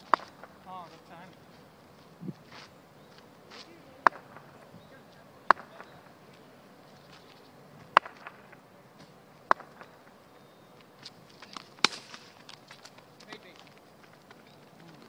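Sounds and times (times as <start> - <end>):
faint outdoor hiss: 0.0 - 15.0
cricket bat knocking on asphalt: 7.9 - 8.6, 9.5 - 10.0.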